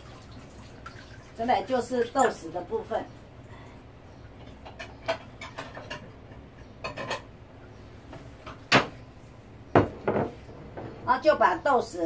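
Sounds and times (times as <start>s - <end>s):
kitchenware clicks and taps: 4.4s - 7.3s.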